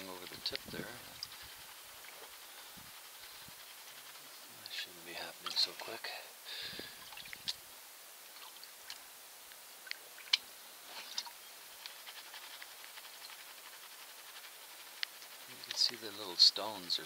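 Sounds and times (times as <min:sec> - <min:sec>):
water dripping: 0:06.8 - 0:12.0.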